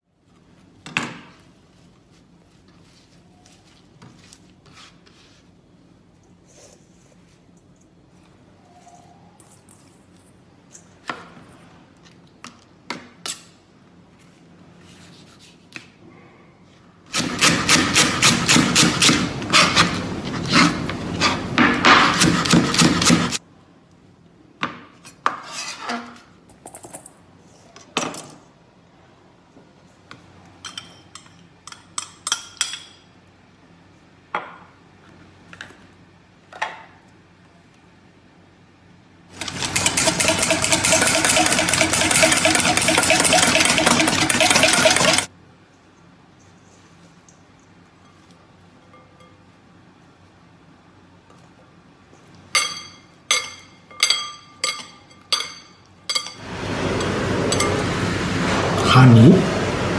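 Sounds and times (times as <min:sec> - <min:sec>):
fast metal scraping against bowl: 0:39.4 - 0:45.3
utensils knocking and scraping: 0:39.4 - 0:45.3.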